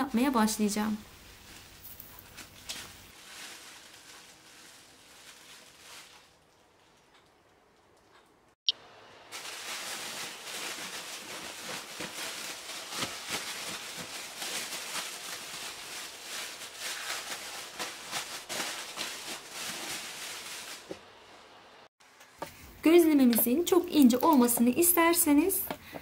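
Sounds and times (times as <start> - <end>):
plastic bag crinkling: 1.4 - 7.1, 9.3 - 21.0.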